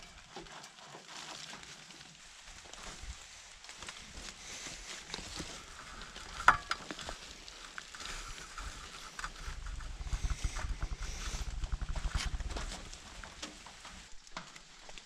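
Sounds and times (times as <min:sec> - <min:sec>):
scratchy rustling of filler: 0:02.8 - 0:14.2
heavy low rubbing: 0:04.6 - 0:14.2.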